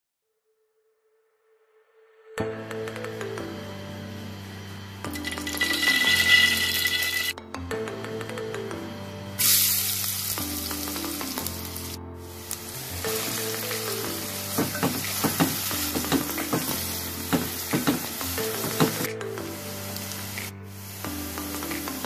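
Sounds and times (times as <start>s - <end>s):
onions sizzling in hot oil: 5.2s - 7.3s, 9.4s - 22.0s.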